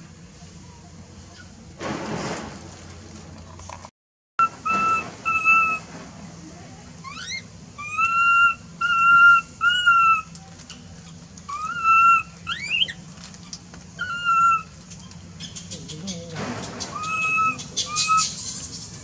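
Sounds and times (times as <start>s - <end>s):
baby monkey coo calls: 4.4s - 5.9s, 7.0s - 10.4s, 11.0s - 19.0s.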